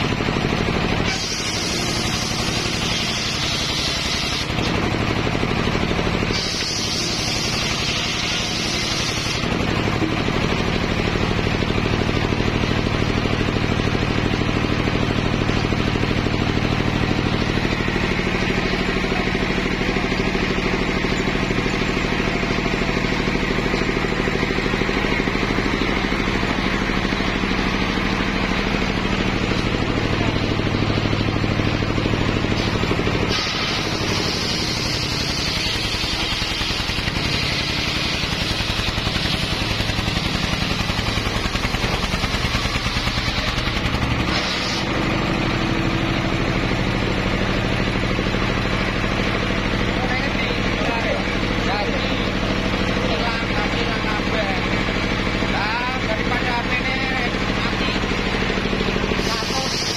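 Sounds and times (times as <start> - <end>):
stationary engine running: 0.0 - 59.9
circular saw blade spinning: 0.9 - 9.6, 32.5 - 44.9, 59.1 - 59.9
saw blade ripping a log: 1.0 - 4.8, 6.3 - 9.5, 44.3 - 44.9.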